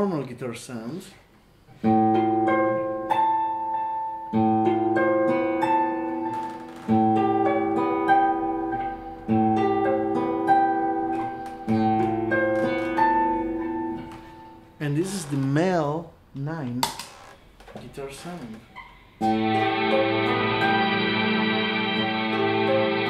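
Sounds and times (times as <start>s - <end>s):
acoustic guitar picked chords: 1.7s - 14.7s, 19.2s - 23.0s.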